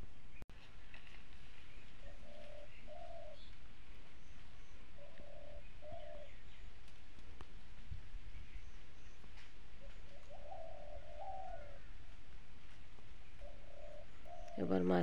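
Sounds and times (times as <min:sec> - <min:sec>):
dove cooing: 0:01.5 - 0:07.0, 0:08.4 - 0:15.0.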